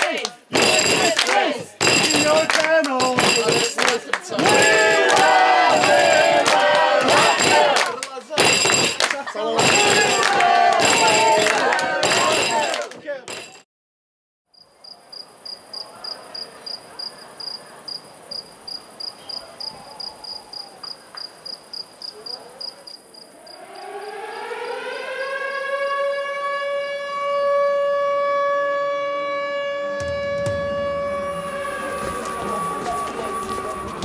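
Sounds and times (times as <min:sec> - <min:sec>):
knocks: 0:01.8 - 0:03.9, 0:08.4 - 0:10.2, 0:30.0 - 0:31.6
cricket chirping: 0:14.5 - 0:25.8
siren wailing: 0:23.2 - 0:34.0.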